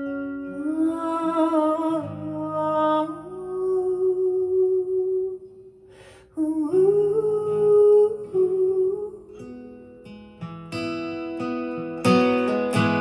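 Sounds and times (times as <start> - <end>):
woman humming wordless melody: 6.4 - 9.4.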